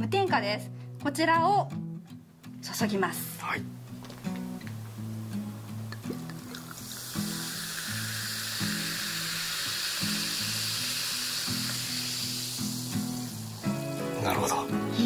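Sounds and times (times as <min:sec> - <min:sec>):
background music: 0:00.0 - 0:15.0
tonic water fizzing over ice: 0:05.8 - 0:14.3.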